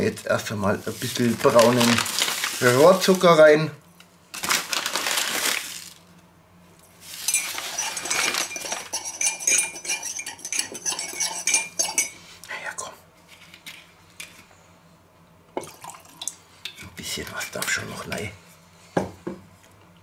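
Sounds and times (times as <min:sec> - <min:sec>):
spoon clinking against mug: 0:07.3 - 0:12.2.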